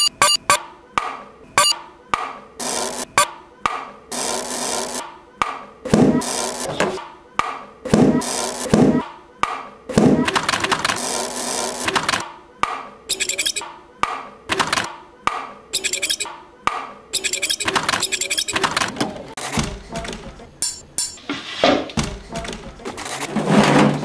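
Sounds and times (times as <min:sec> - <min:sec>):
knocks and scrapes: 0:17.8 - 0:24.0
heavy thuds: 0:21.6 - 0:22.8.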